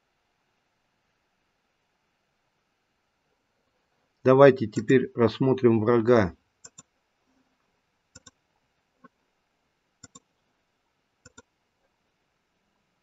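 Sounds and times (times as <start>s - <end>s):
computer mouse clicks: 6.6s - 6.9s, 8.1s - 8.4s, 10.0s - 10.3s, 11.2s - 11.5s.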